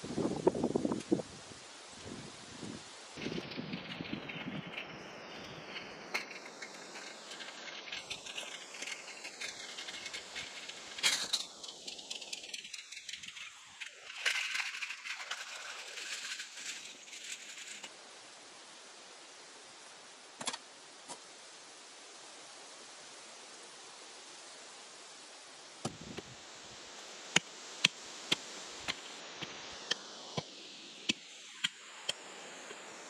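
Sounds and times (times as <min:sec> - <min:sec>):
objects rattling in metal cart: 0:03.2 - 0:17.9.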